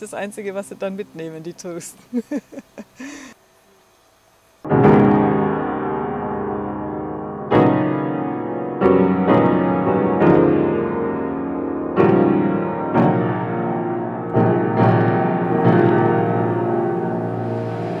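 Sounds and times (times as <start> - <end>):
loud piano chords: 4.6 - 18.0.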